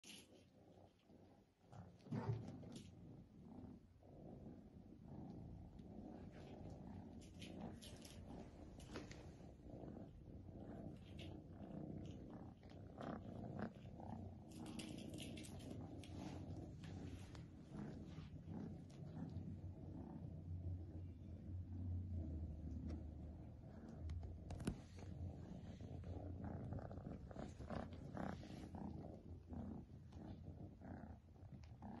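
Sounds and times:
cat purring: 0.0s - 32.0s
kittens batting toy on carpet: 7.2s - 9.3s, 13.7s - 18.0s.

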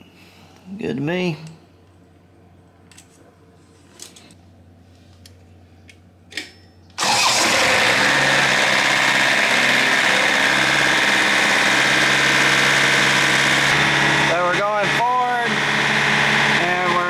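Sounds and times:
irrigation motor running: 7.0s - 17.0s.

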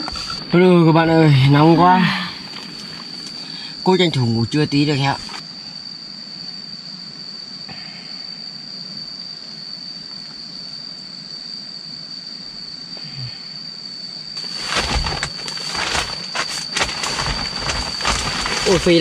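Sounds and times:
insect high-pitched drone: 0.0s - 19.0s
plastic tarp crinkling: 14.4s - 19.0s.

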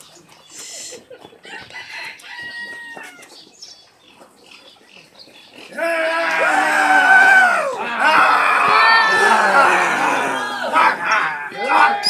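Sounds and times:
birds calling: 0.0s - 6.6s.

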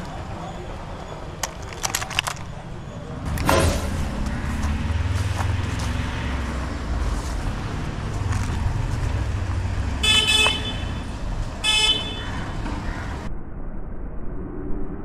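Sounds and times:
vehicle horn toots: 10.0s - 12.3s.

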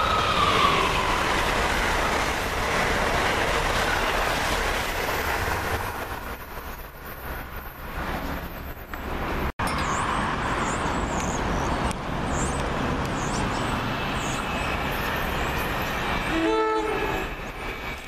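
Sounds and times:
train rushing: 0.0s - 18.0s
train horn blast: 16.2s - 17.5s.

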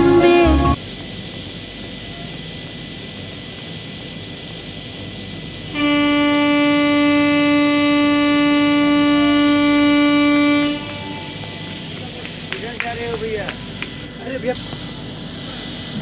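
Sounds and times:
train horn: 5.7s - 12.0s.

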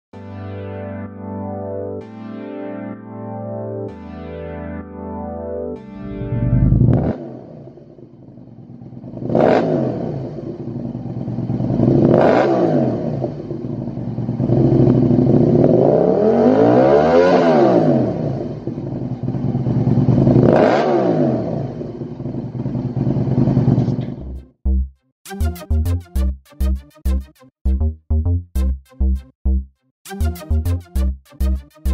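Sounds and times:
motorcycle engine idling and revving: 6.0s - 24.6s.

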